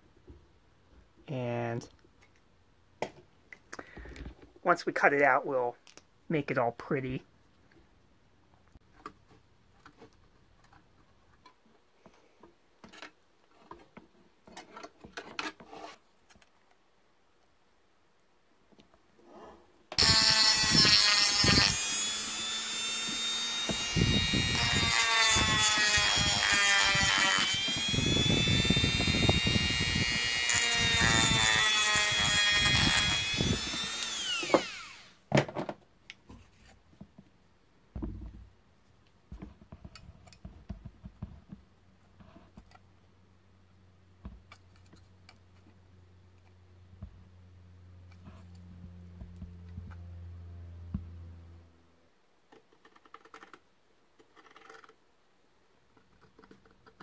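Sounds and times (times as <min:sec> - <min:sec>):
power tool cutting metal: 0:20.0 - 0:35.2
power tool spinning down: 0:20.0 - 0:35.2.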